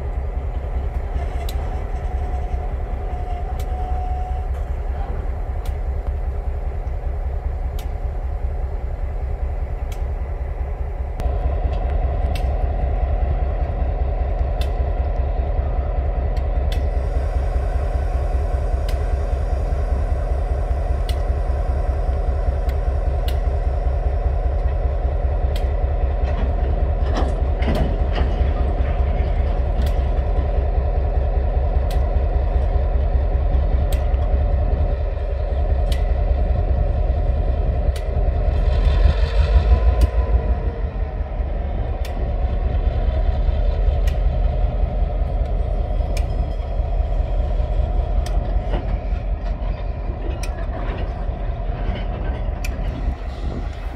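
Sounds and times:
diesel locomotive engine: 0:00.0 - 0:53.9
train rolling rumble: 0:00.0 - 0:53.9
wheels clacking over rail joints: 0:24.2 - 0:31.0, 0:35.8 - 0:53.9.

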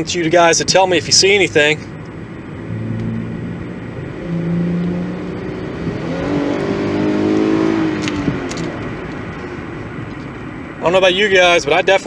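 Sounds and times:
car engine accelerating: 0:01.8 - 0:10.6.

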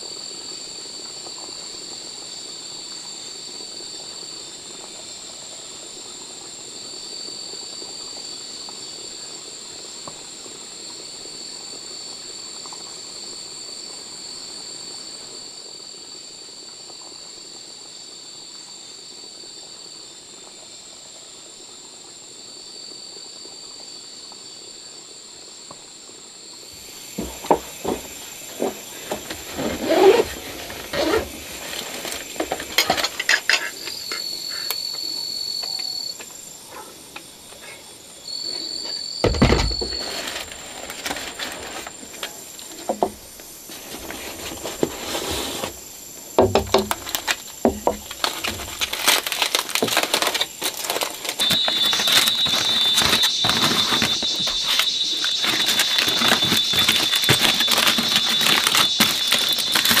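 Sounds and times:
aluminium foil crinkling: 0:46.8 - 1:00.0
gear rustling and clicking: 0:46.9 - 1:00.0.

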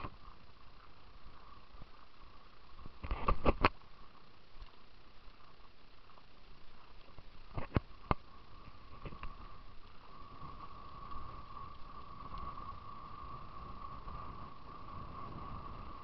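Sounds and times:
faint whine: 0:00.0 - 0:16.0
wind rumble on microphone: 0:06.8 - 0:16.0.

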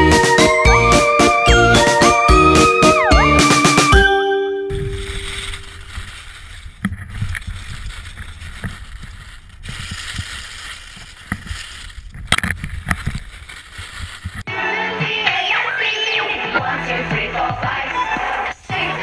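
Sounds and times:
music: 0:00.0 - 0:05.1, 0:14.5 - 0:19.0
skis scraping over snow: 0:04.7 - 0:14.5.

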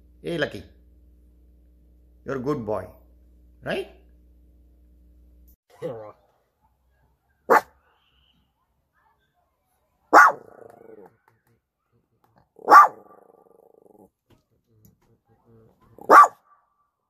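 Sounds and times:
small dog barking: 0:06.6 - 0:07.8, 0:10.1 - 0:11.1, 0:12.6 - 0:13.8, 0:16.0 - 0:16.6.

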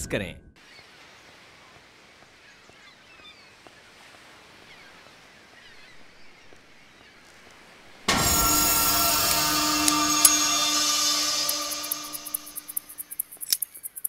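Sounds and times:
small birds chirping: 0:00.6 - 0:08.0, 0:12.7 - 0:14.0
loud held tones: 0:08.0 - 0:13.4.

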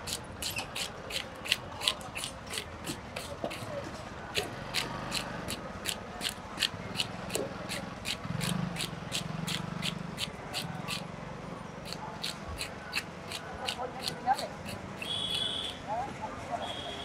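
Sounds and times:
blade scraping fish scales: 0:00.0 - 0:03.7, 0:11.8 - 0:14.8.

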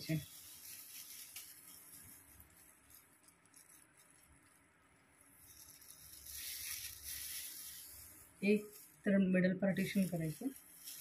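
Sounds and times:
comb working through hair: 0:00.0 - 0:04.6, 0:05.2 - 0:09.1
gloved hands rustling: 0:00.0 - 0:11.0.

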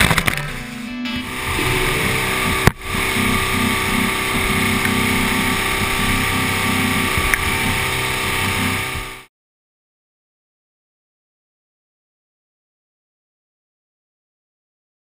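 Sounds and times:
outboard motor droning: 0:00.0 - 0:09.3.

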